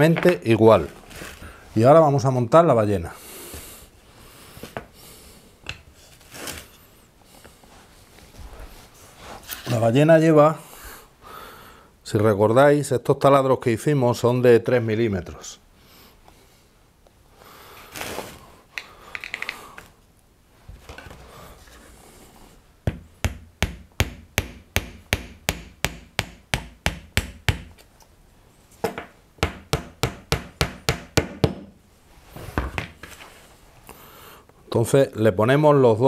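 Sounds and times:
wooden parts scraped and handled: 0:09.1 - 0:09.9
hammer tapping on wood: 0:22.9 - 0:27.8, 0:28.9 - 0:31.7.

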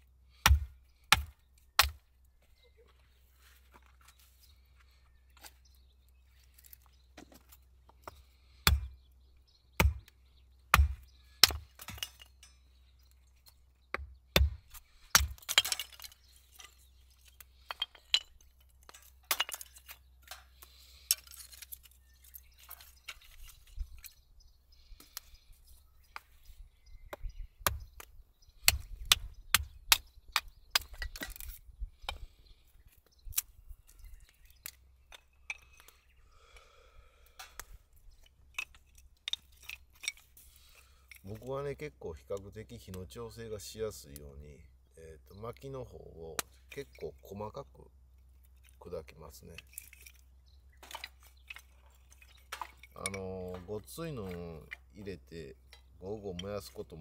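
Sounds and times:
hatchet splitting wood: 0:00.4 - 0:02.0, 0:08.0 - 0:09.0, 0:09.7 - 0:12.3, 0:13.9 - 0:16.7, 0:27.1 - 0:32.3, 0:50.8 - 0:54.8.

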